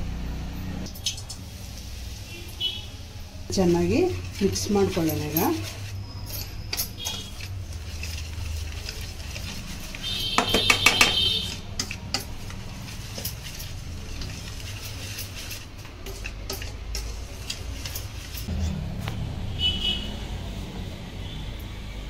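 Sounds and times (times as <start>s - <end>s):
whisk scraping steel bowl: 3.5s - 18.5s.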